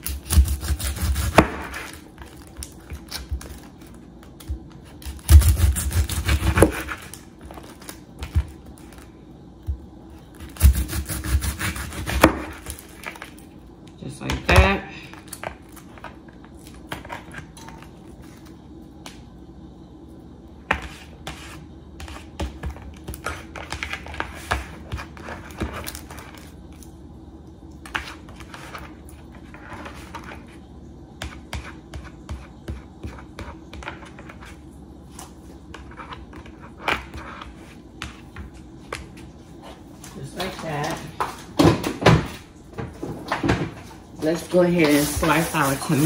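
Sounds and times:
knife slicing onion: 0.0 - 3.7, 4.4 - 9.0, 10.4 - 13.2
low steady hum: 0.0 - 46.0.

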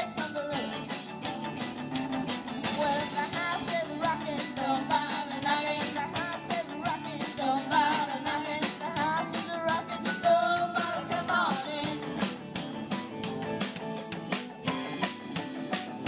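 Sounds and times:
woman singing lead vocal: 0.0 - 0.9, 2.7 - 12.1
drum kit beat: 0.0 - 16.0
electric guitars: 0.0 - 16.0.

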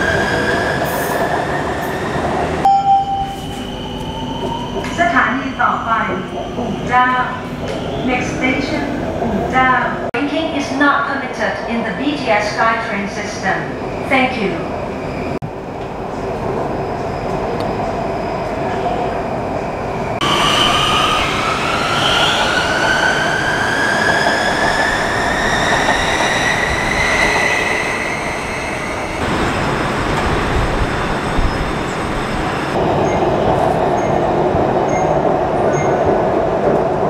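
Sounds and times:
train track rumble: 15.3 - 37.0.

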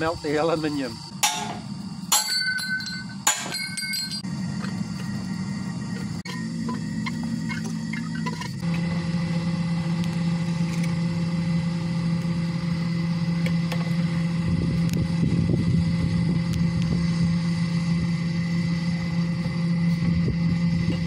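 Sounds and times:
electric blower running: 4.2 - 21.0.

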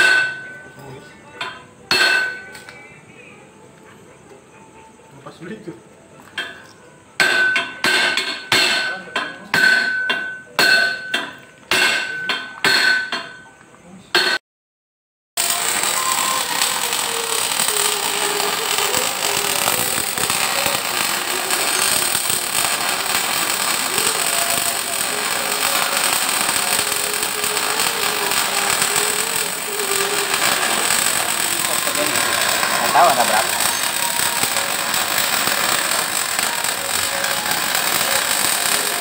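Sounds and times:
hammer striking metal: 0.0 - 0.5, 1.4 - 2.5, 7.2 - 13.4, 14.2 - 14.4
electric arc welding hiss: 15.4 - 39.0.

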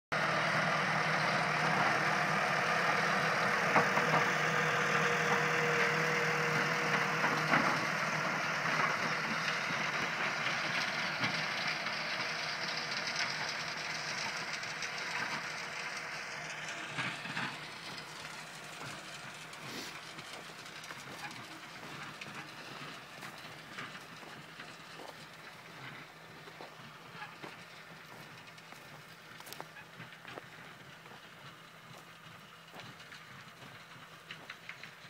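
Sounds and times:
tractor diesel engine running: 0.1 - 35.0.

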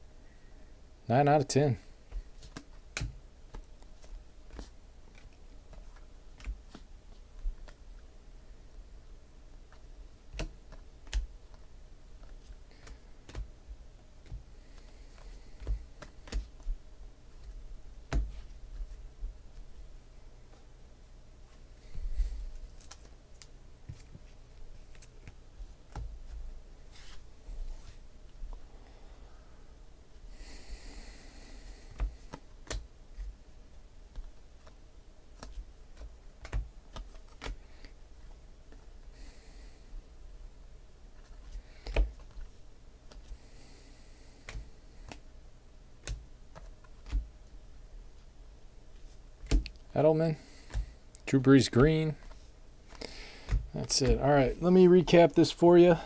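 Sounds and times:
cards flipped clicking and tapping: 2.1 - 7.8, 9.7 - 13.5, 14.2 - 16.8, 22.5 - 26.4, 31.9 - 33.4, 34.1 - 37.9, 41.2 - 42.5, 43.1 - 43.4, 44.4 - 45.2, 46.0 - 47.3, 49.4 - 49.8, 50.7 - 50.9, 52.2 - 54.2.

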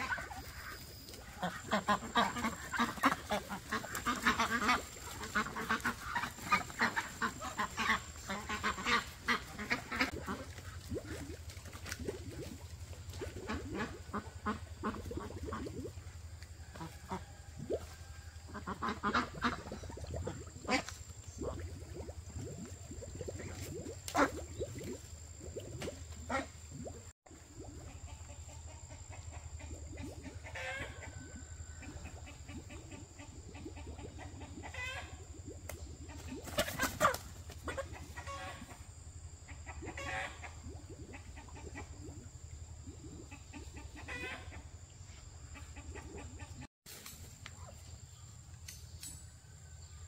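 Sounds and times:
chickens clucking: 35.7 - 38.8.

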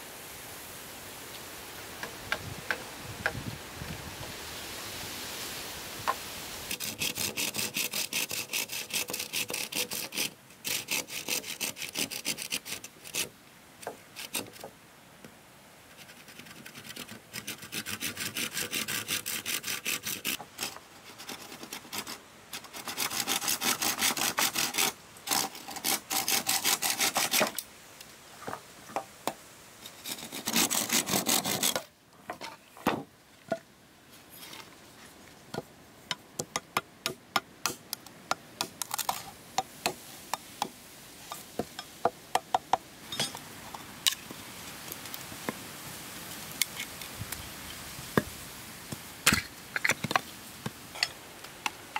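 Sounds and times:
handsaw cutting bamboo: 6.7 - 13.3, 14.2 - 14.6, 16.0 - 27.6, 29.9 - 31.9.

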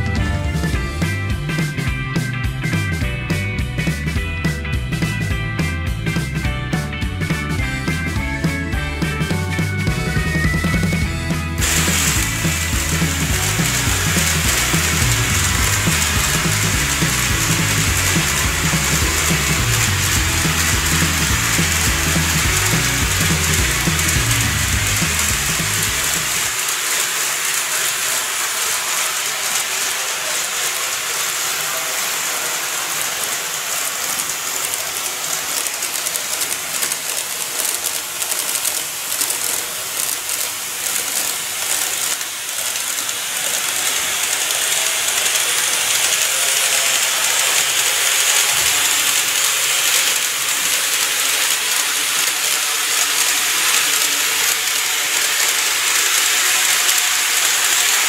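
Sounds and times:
wheels clicking over rail joints: 0.0 - 58.0
model train rolling whir: 6.8 - 58.0.

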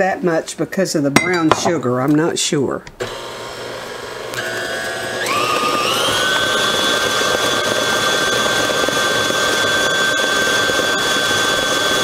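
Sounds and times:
stand mixer motor whine: 3.0 - 12.0.

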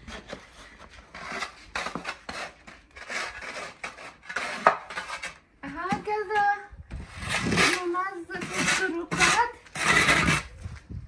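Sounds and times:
shovel scraping into snow: 7.0 - 10.7.

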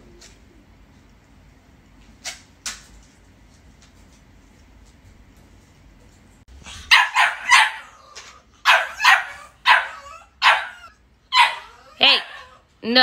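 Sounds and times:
puppy barking in sharp yaps: 6.7 - 7.9, 8.6 - 11.7.

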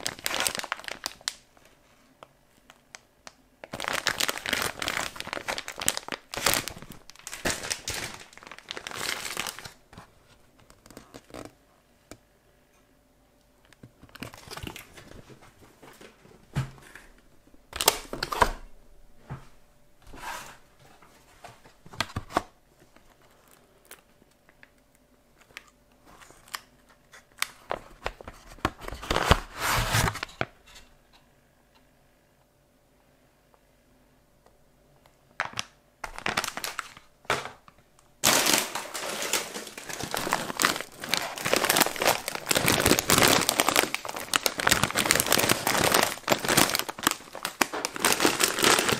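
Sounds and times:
plastic packaging crinkling: 0.0 - 11.6, 13.7 - 15.5, 17.7 - 18.6, 21.6 - 30.9, 35.4 - 48.9.

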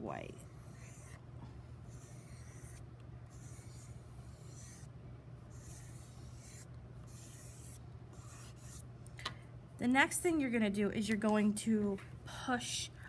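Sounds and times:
steady low hum: 0.0 - 13.0
chalk pastel scraping paper: 0.4 - 1.2, 1.9 - 4.9, 5.5 - 8.8.

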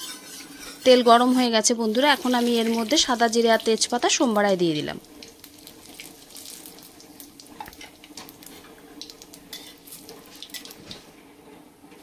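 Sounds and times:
spices sizzling in hot oil: 0.0 - 11.1
sharp crackles and pops: 5.0 - 11.1.

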